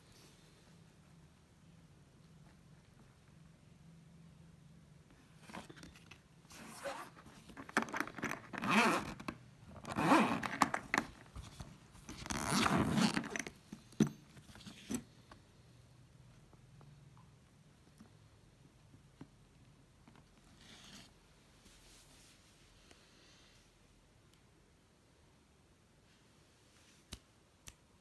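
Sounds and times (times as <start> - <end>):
zipper rasping open: 5.4 - 13.6.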